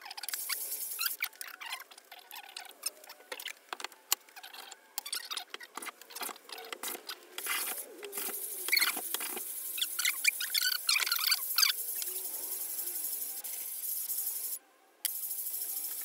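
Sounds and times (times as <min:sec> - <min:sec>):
small scrapes and clicks: 0:00.0 - 0:12.2.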